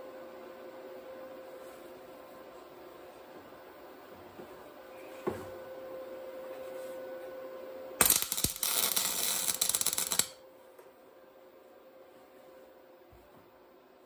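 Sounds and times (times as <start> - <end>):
faint steady hum: 0.0 - 14.0
arc welder crackling hiss: 8.0 - 10.4.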